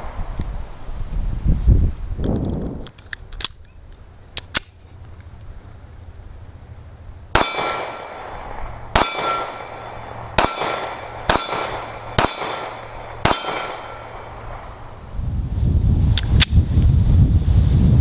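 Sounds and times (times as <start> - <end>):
pistol shots: 7.3 - 14.7
steel target ringing: 7.4 - 14.8.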